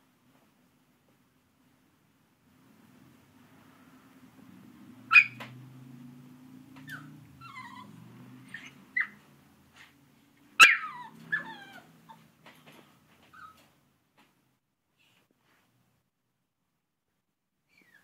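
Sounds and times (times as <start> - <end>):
puppy whining and yipping: 5.1 - 5.5, 6.7 - 10.0, 10.6 - 12.4, 13.2 - 13.8, 17.7 - 18.0.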